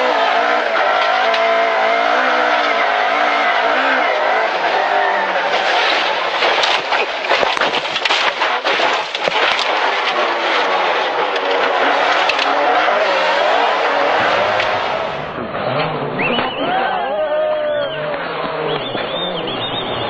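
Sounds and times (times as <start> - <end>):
snow and ice hitting car body: 0.0 - 15.2
car engine revving: 0.0 - 20.0.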